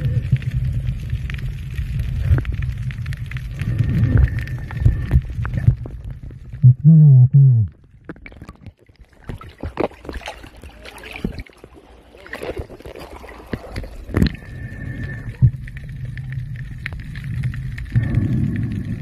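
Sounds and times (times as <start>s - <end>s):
water sloshing and splashing: 7.9s - 17.9s
boat engine droning underwater: 9.6s - 19.0s.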